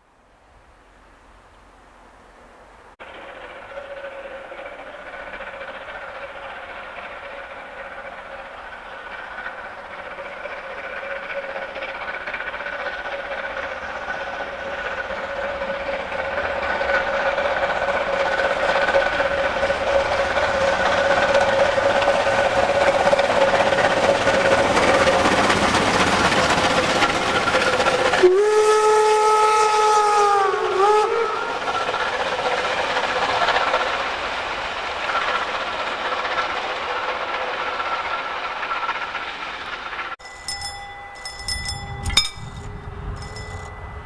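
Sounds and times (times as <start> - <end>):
steam locomotive exhaust and running: 3.0 - 44.0
steam whistle blast: 28.2 - 31.8.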